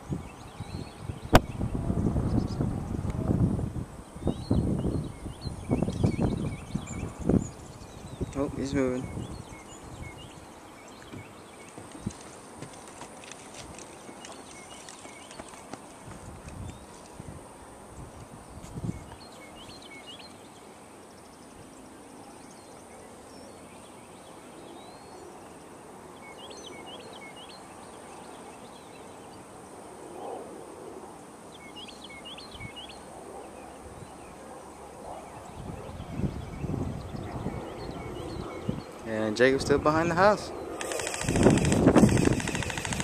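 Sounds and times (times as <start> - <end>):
faint outdoor background noise: 0.0 - 43.0
small bird chirping: 40.8 - 43.0.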